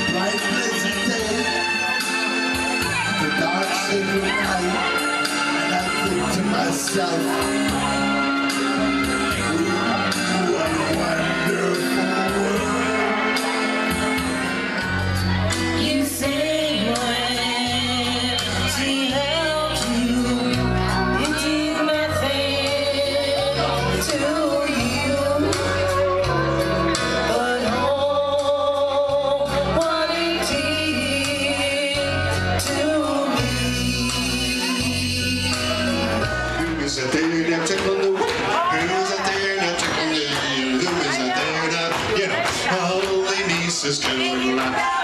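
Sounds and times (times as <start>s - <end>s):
person singing into a microphone: 0.0s - 37.5s, 38.7s - 45.0s
backing track with strong bass: 0.0s - 45.0s.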